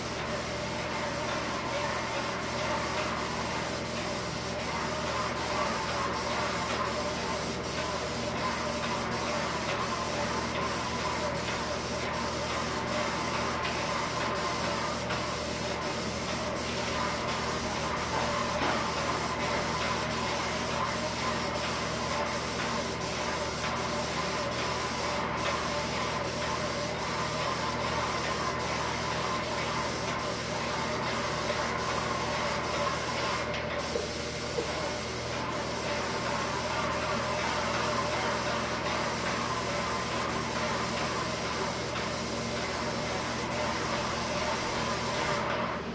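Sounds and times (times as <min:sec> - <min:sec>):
paint spray hissing: 0:00.0 - 0:45.5
sprayer machine hum: 0:00.0 - 0:45.9.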